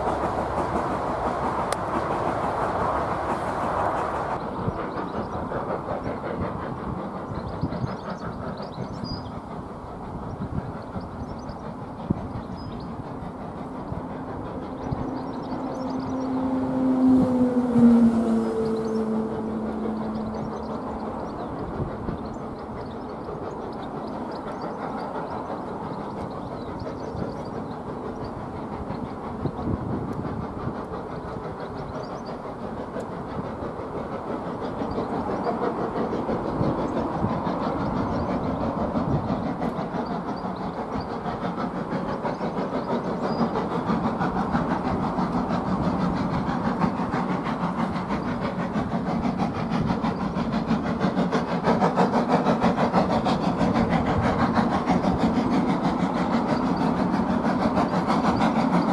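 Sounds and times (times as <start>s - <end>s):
steam locomotive running: 0.0s - 58.9s.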